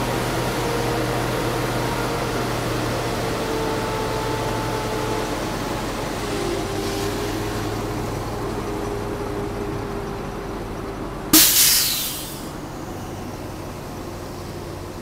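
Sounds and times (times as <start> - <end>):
vehicle engine humming: 0.0 - 15.0
loud hiss: 11.3 - 12.7.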